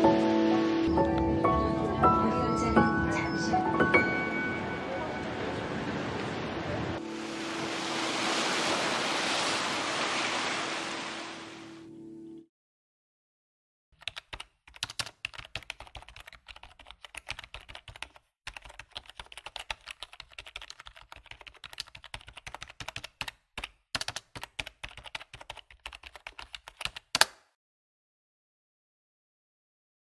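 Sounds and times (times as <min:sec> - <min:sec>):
keyboard keystroke clicks: 0:14.0 - 0:19.1, 0:20.8 - 0:27.4.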